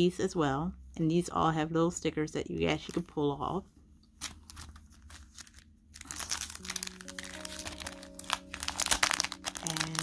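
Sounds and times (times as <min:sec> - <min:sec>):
soft background music: 0:00.0 - 0:10.0
plastic sleeve and paper crinkling: 0:04.2 - 0:10.0.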